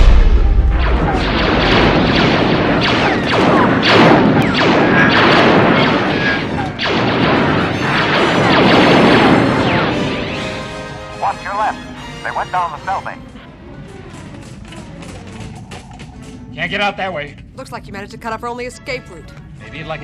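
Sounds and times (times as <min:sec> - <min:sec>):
laser blaster shots: 0:00.0 - 0:10.9
booming blasts and crashes: 0:00.0 - 0:11.6.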